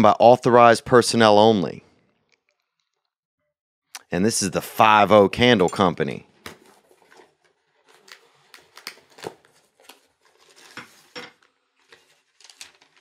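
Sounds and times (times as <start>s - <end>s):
paper rustling: 6.5s - 13.0s.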